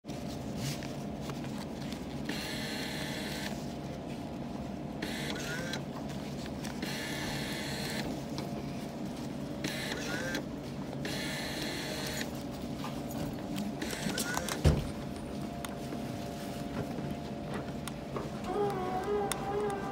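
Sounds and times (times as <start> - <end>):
bill acceptor whirring: 2.2 - 3.6, 5.0 - 5.9, 6.8 - 8.1, 9.6 - 12.4.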